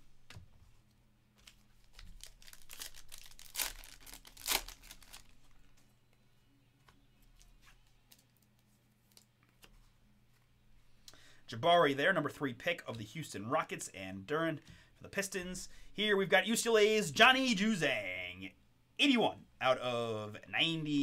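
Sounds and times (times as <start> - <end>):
wrapper crinkling: 1.4 - 5.7
wrapper ripping: 1.8 - 5.6.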